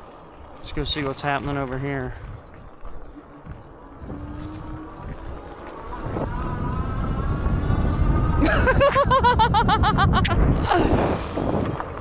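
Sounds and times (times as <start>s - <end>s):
tyre and wind rumble: 0.0s - 12.0s
electric motor whine: 3.0s - 8.8s.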